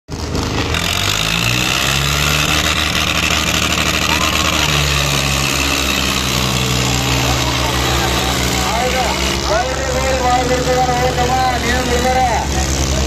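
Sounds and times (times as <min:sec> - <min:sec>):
large crowd noise: 0:00.1 - 0:13.0
tractor diesel engine running: 0:00.1 - 0:13.0.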